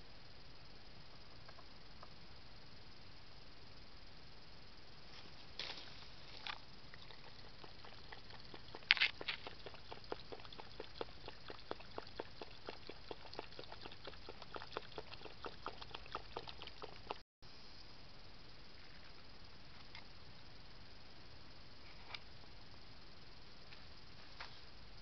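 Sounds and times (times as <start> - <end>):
animal crunching food: 5.6 - 17.2
animal chewing and smacking: 6.4 - 17.2.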